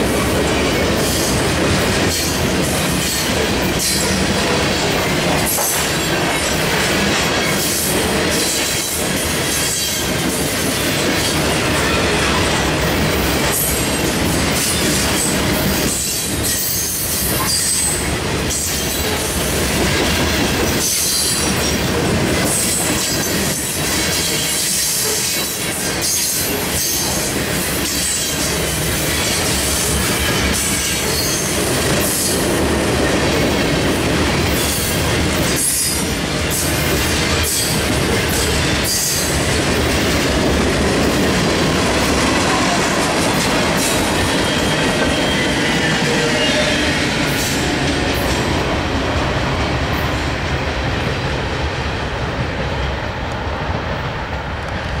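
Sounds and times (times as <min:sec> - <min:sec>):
freight train wheels clattering: 0:00.0 - 0:55.0.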